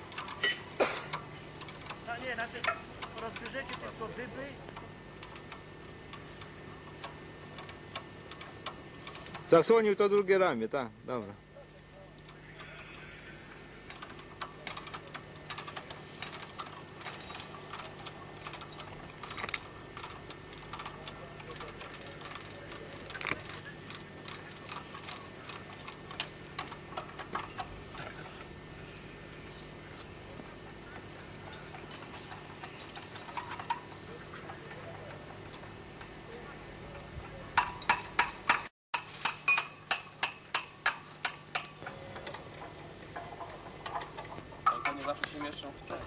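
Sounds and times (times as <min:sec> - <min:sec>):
insulator discs clicking and clinking: 0:00.0 - 0:10.4, 0:13.9 - 0:28.3
steady low hum: 0:00.0 - 0:46.0.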